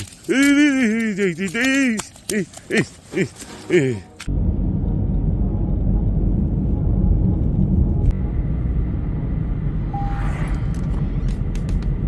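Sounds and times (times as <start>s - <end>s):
road and engine rumble: 0.0s - 12.0s
brief beep: 9.9s - 10.4s.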